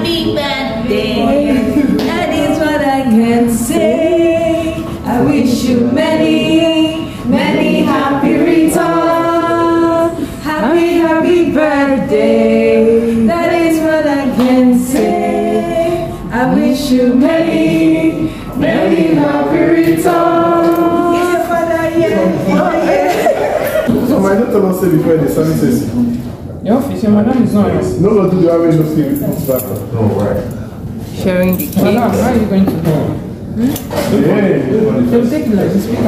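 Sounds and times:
group singing unaccompanied: 0.8 - 23.9.

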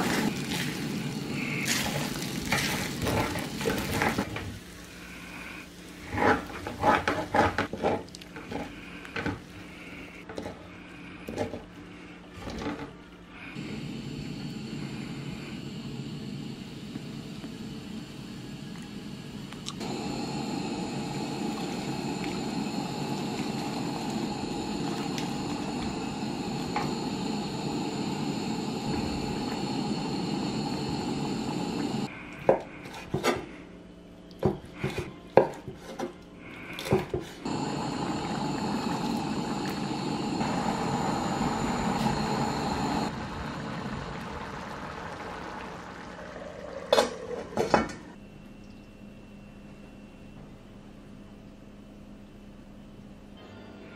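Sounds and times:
broth sizzling in a pan: 0.0 - 7.3, 19.8 - 32.1, 37.4 - 47.2.

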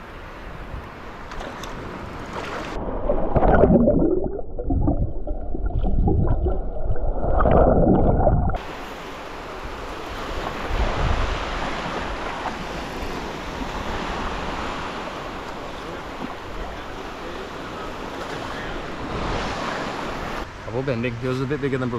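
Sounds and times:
small waves washing: 1.0 - 20.8
muffled underwater gurgling: 3.2 - 8.6
wind on microphone: 10.2 - 14.5.

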